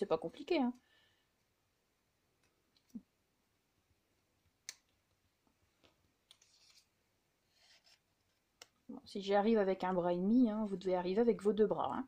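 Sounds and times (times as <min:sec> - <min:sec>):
soft paper rustle: 0:05.7 - 0:08.6.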